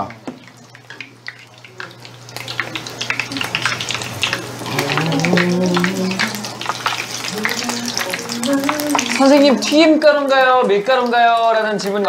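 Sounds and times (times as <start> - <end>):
deep-frying sizzle and crackles: 0.0 - 12.0.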